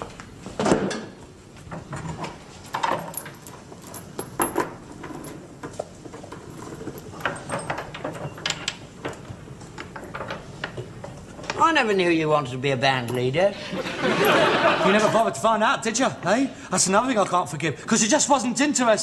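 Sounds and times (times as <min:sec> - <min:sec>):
metallic clinks and knocks: 0:01.9 - 0:11.6.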